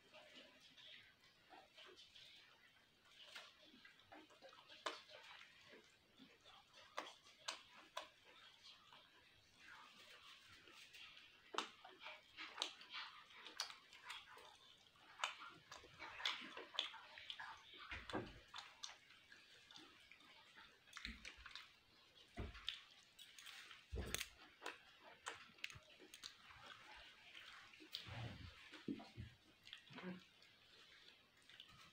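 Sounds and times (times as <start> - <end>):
person chewing food: 0.3 - 31.9
wet mouth clicks and smacks: 11.5 - 17.6.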